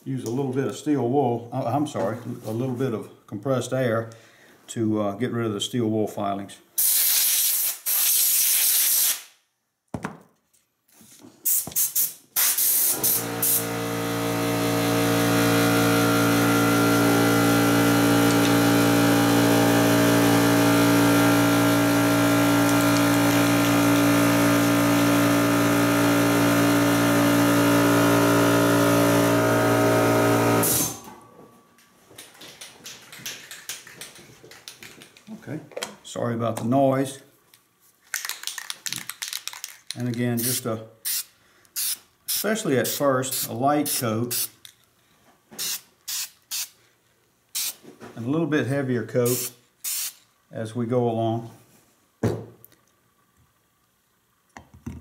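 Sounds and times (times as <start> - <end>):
air compressor humming: 11.4 - 31.3, 47.5 - 47.8, 49.3 - 50.2
air blow gun hissing: 11.5 - 13.8, 45.6 - 46.8, 47.6 - 47.8, 49.3 - 50.2.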